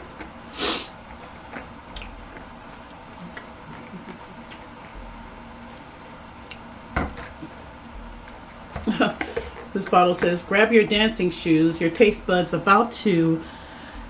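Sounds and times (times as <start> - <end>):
close chewing with mouth clicks: 0.0 - 9.8.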